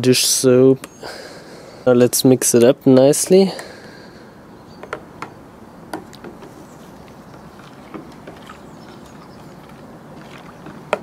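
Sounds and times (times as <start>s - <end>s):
rod swishing soapy liquid: 6.8s - 11.0s
rod knocking plastic tub: 10.3s - 11.0s.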